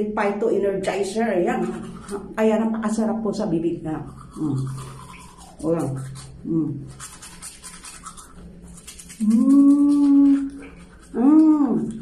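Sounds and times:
toothbrush scrubbing: 0.9s - 12.0s
person humming: 6.4s - 6.9s, 9.2s - 12.0s.

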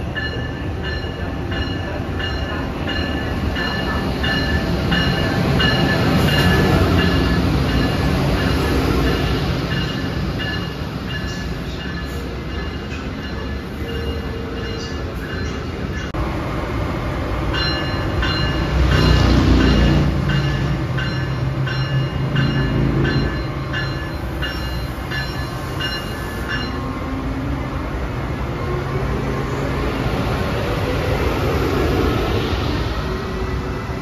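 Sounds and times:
locomotive bell ringing: 0.0s - 16.2s, 17.5s - 27.6s
train wheel noise and hum: 0.0s - 34.0s.

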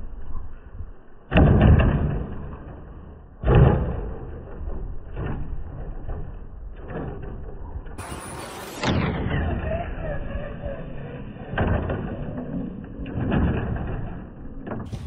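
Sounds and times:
toy truck thudding on landing: 11.4s - 15.0s.

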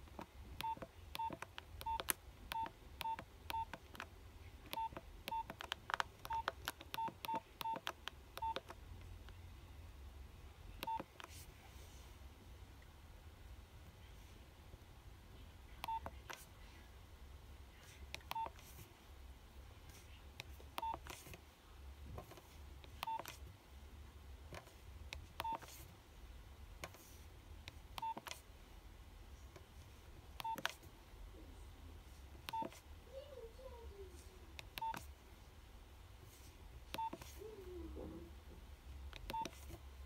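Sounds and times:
phone keypad beeps: 0.6s - 3.8s, 4.7s - 8.8s, 10.8s - 11.1s, 15.8s - 16.1s, 18.2s - 18.6s, 20.8s - 21.2s, 23.0s - 23.4s, 25.4s - 25.8s, 28.0s - 28.4s, 30.4s - 30.8s, 32.5s - 32.8s, 34.8s - 35.1s, 36.9s - 37.4s, 39.3s - 39.6s
key clicks: 4.7s - 8.8s.

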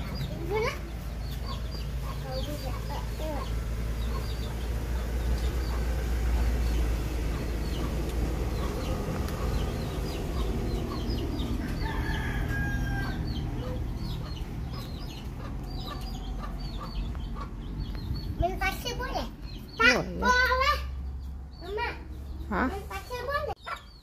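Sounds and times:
chickens calling: 0.0s - 24.0s
rooster crowing: 11.4s - 13.8s.

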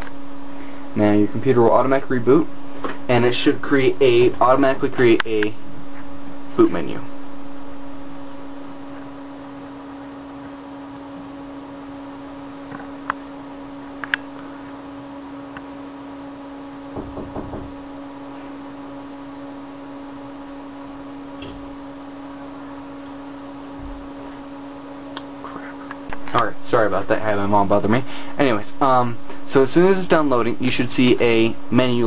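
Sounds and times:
desktop computer humming: 0.0s - 32.0s
sharp knocks: 16.9s - 17.8s.

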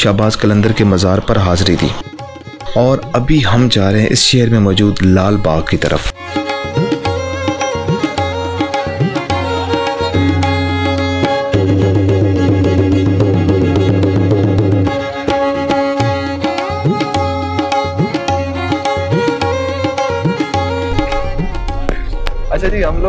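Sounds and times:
fast drumming: 6.7s - 23.0s.

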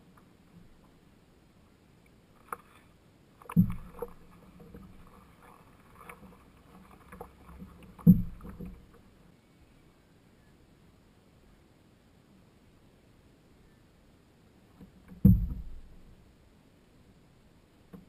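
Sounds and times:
small water ticks and knocks: 2.4s - 9.1s, 14.7s - 16.1s
paddle stroke thumps with water wash: 3.4s - 9.1s, 14.8s - 15.9s.

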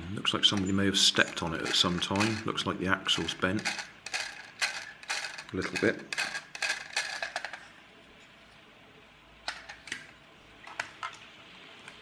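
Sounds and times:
plastic toy car being handled: 0.4s - 2.6s, 3.5s - 7.7s.

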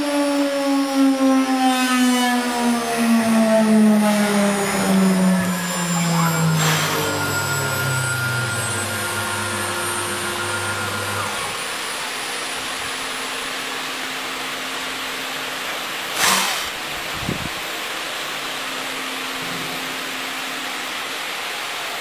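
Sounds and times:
cnc router machining: 0.0s - 22.0s
low hum: 2.4s - 15.3s
short loud burst of noise: 4.0s - 12.2s, 16.1s - 16.9s.

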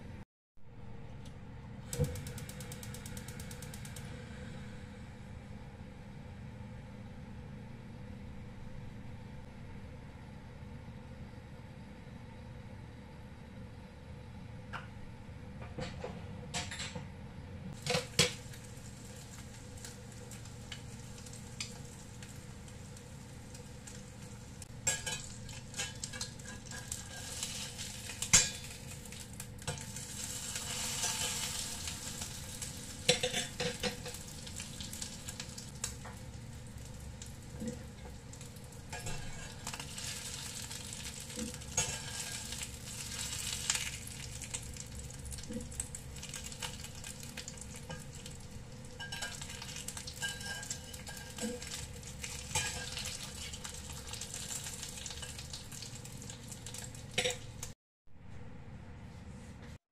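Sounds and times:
meat sizzling in a frying pan: 17.8s - 57.7s
metal spatula clinking on pan: 49.0s - 49.6s, 50.2s - 51.5s.

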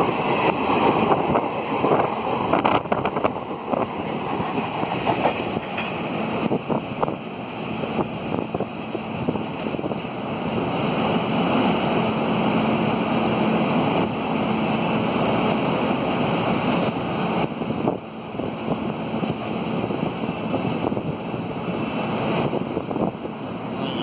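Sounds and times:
wind noise on microphone: 0.0s - 10.7s, 16.5s - 23.7s
train rumbling: 0.0s - 24.0s.

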